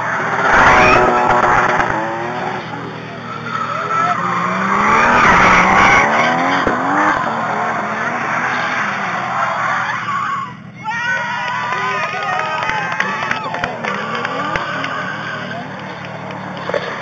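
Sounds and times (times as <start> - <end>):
car engine revving hard: 0.0 - 9.3, 13.5 - 17.0
tyres screeching: 0.0 - 17.0.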